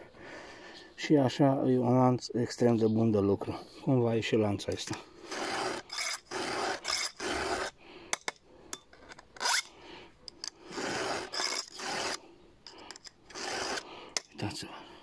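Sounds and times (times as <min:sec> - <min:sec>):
file rasping on chain teeth: 0:05.3 - 0:09.7, 0:10.3 - 0:14.4.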